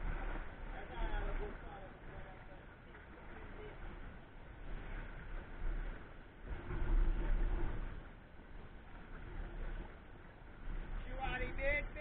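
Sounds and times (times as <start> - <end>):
sea surf on rocks: 0.0 - 12.0.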